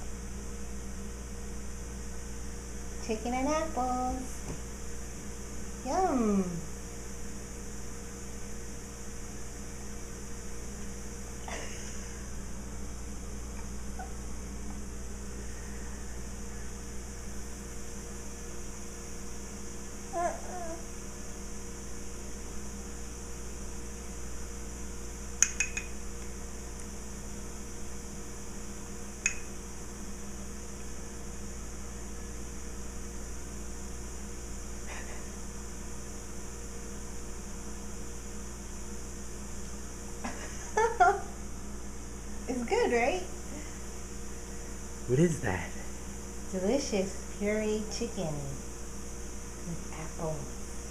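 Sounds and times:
electrical hum: 0.0 - 50.9
sharp light clicks: 25.4 - 26.0, 29.2 - 29.5.

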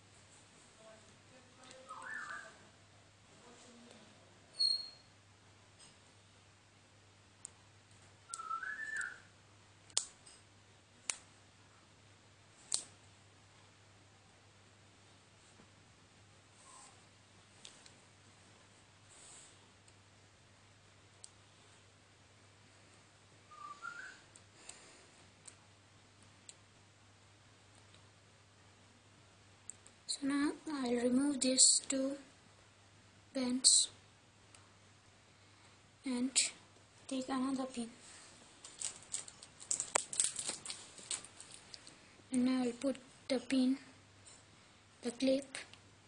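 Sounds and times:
low steady hum: 0.0 - 46.0
faint rising squeak: 4.5 - 5.1
sharp clicks: 9.9 - 10.4.

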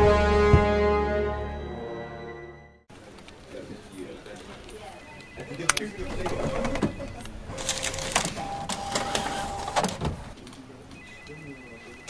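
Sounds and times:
photocopier whirring and clicking: 5.2 - 11.3.

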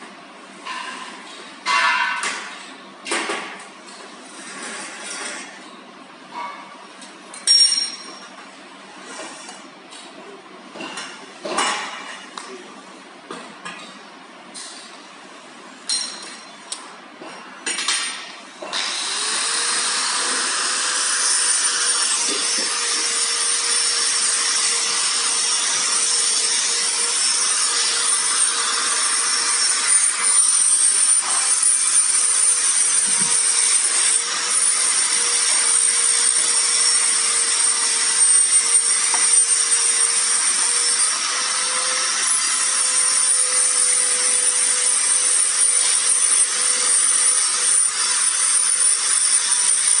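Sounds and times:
machine rasping: 18.2 - 50.0.

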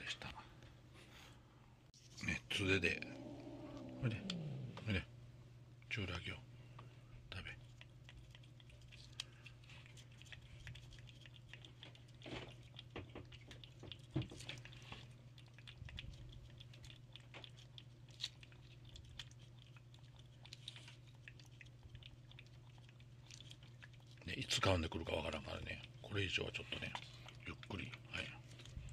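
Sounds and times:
cat licking: 3.1 - 4.8, 7.4 - 28.9.

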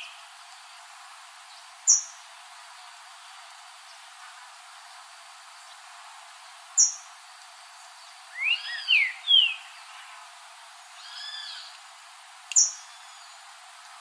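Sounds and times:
bird singing whistled notes: 6.8 - 7.1, 8.3 - 9.8, 11.0 - 11.7, 12.5 - 13.4.

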